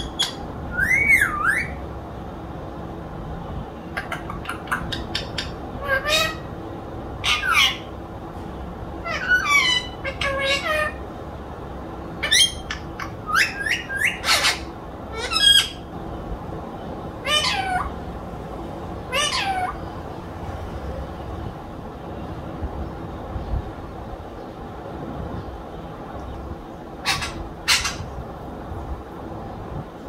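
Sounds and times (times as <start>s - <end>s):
parakeet squawking: 0.0s - 1.8s, 3.9s - 6.5s, 7.2s - 7.9s, 9.0s - 11.0s, 12.2s - 15.9s, 17.2s - 18.0s, 19.0s - 19.9s, 27.0s - 28.2s.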